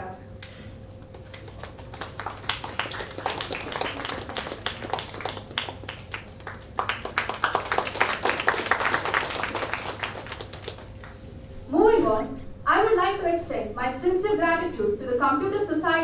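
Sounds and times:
audience applause: 1.1 - 11.2.

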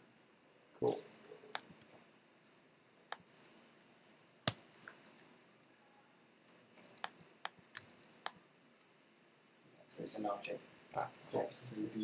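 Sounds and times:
faint room hiss: 0.0 - 12.0
computer key and mouse clicks: 6.5 - 8.9.

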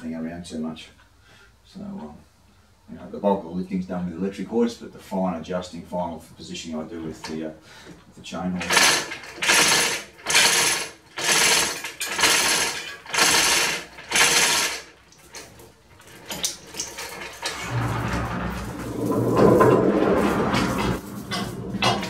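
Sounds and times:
chain rattling through block: 8.6 - 17.9
clatter: 8.6 - 22.0.

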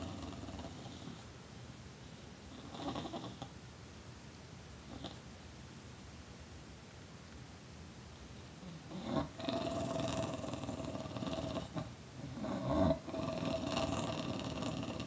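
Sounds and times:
dog growling: 0.0 - 1.2, 2.5 - 3.5, 8.6 - 15.0.

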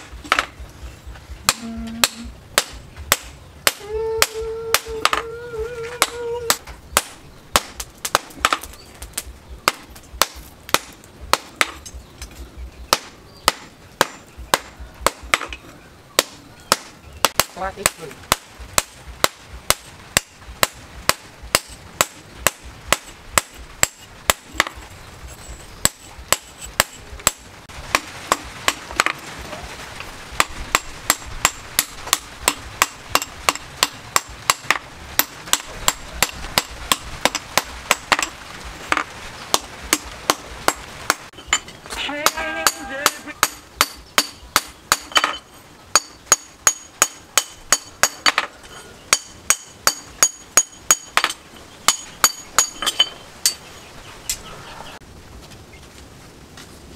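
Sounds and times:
hammer striking hot steel on anvil: 38.9 - 48.5, 49.1 - 53.6.

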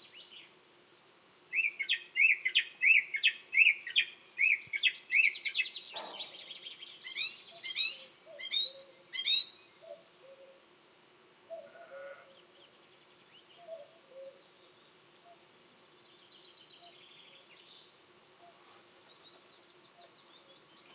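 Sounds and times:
distant cuckoo calling: 1.5 - 10.6, 11.5 - 12.6, 13.5 - 14.5
song thrush singing: 1.5 - 10.6, 12.3 - 20.9.

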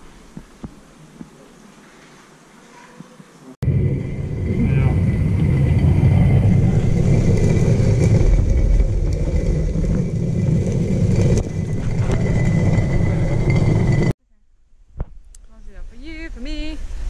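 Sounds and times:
vehicle engine rumble: 3.6 - 14.2.

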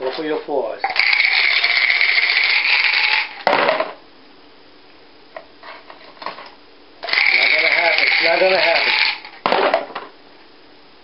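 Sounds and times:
dice rattling in plastic cup: 0.9 - 3.4, 7.0 - 9.4
dice clattering out: 0.9 - 3.8, 7.0 - 9.4.

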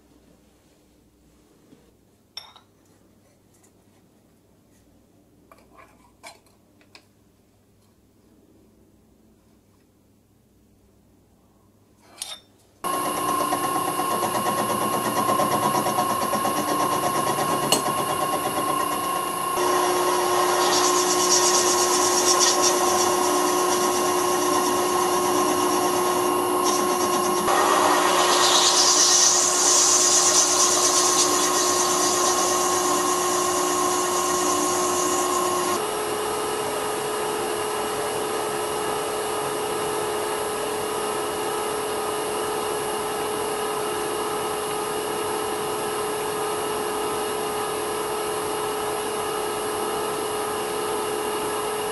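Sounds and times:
metal lathe humming: 12.8 - 35.8
hiss of cutting tool: 19.5 - 35.8.

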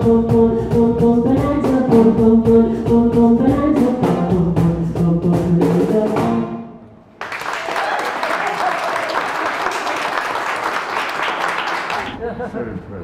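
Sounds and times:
drums keeping steady beat: 0.0 - 6.4
woman singing: 0.0 - 6.4.

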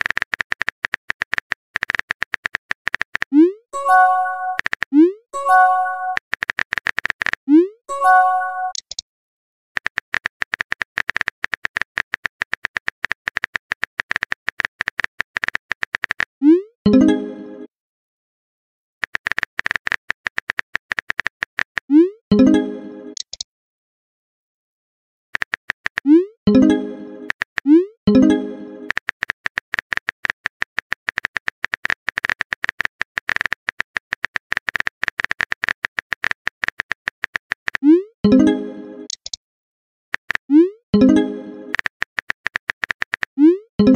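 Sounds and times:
phone keyboard clicks: 0.0 - 3.4, 6.1 - 7.4, 8.7 - 9.0, 9.8 - 16.3, 19.0 - 21.9, 23.2 - 23.4, 25.4 - 26.1, 28.9 - 37.9, 39.1 - 39.4, 41.7 - 43.4.

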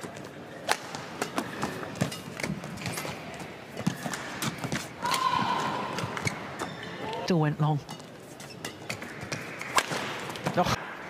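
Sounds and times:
court shoes squeaking: 0.0 - 10.8
arena noise: 0.0 - 11.0
rackets striking shuttlecock: 7.9 - 10.6.

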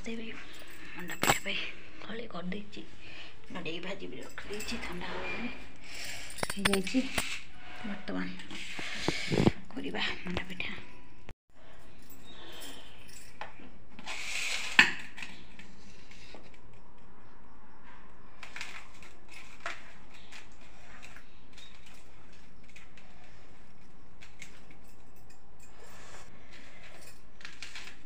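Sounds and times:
bangles clinking: 0.0 - 1.9, 3.2 - 7.5, 9.8 - 17.2, 18.3 - 28.0.

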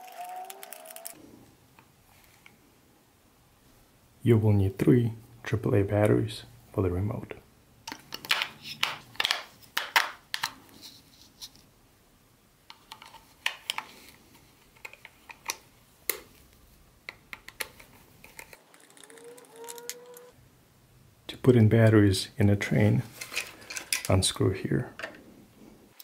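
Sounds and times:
batteries clicking into remote: 0.0 - 1.2, 17.4 - 20.3.

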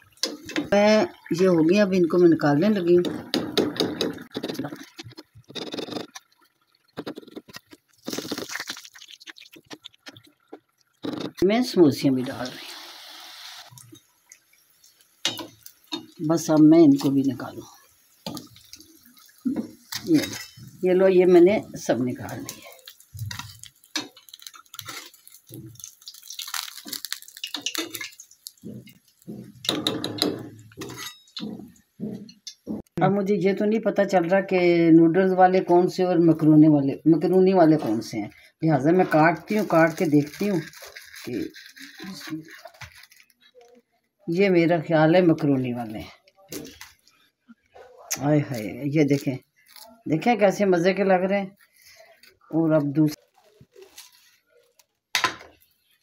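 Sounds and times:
crisp food crunching: 4.4 - 11.4, 22.4 - 29.4, 39.4 - 44.1, 53.1 - 56.0
frying oil hissing: 6.9 - 32.4, 37.1 - 43.1.

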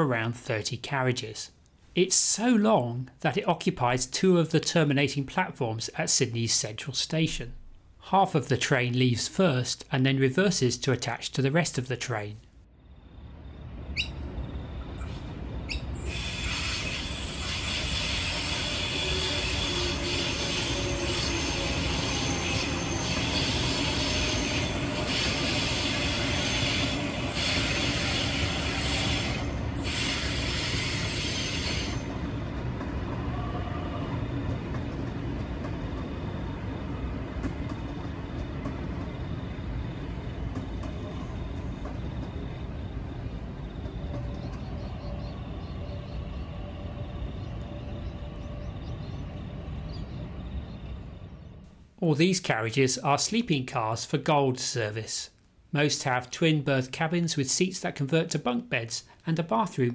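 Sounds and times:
electric train running past: 12.8 - 51.7.

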